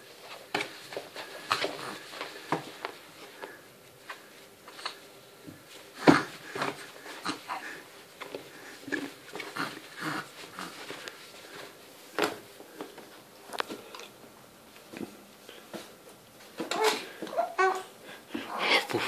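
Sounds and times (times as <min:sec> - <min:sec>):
soft clicks and rustles: 0:00.0 - 0:06.0, 0:08.0 - 0:16.9.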